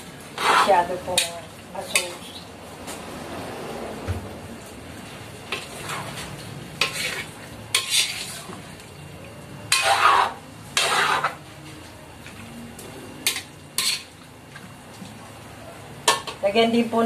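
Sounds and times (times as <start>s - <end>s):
metal ladle scraping wok: 0.3s - 2.4s, 5.5s - 8.7s, 9.7s - 11.4s, 13.2s - 14.2s.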